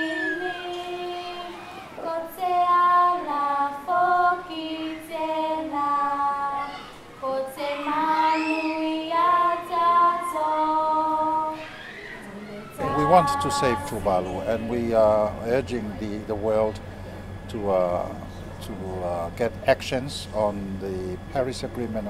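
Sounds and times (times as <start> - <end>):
young girls singing: 0.0 - 15.6.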